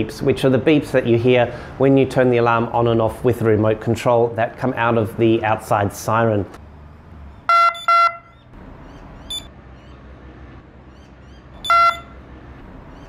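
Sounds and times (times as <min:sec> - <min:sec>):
alarm siren beeps: 0:07.5 - 0:08.5, 0:09.3 - 0:09.5, 0:11.6 - 0:12.2.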